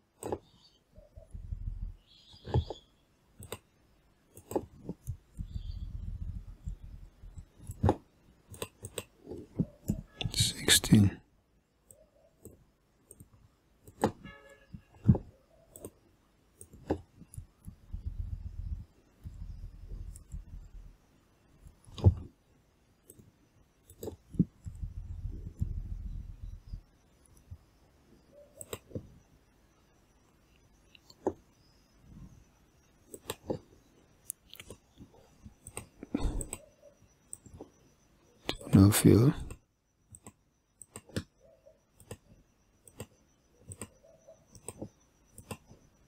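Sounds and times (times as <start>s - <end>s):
computer mouse clicking: 0.1s - 1.3s, 2.0s - 10.4s, 11.8s - 14.2s, 15.0s - 21.0s, 23.0s - 27.7s, 28.4s - 29.1s, 30.4s - 31.5s, 33.0s - 37.8s, 39.4s - 45.9s.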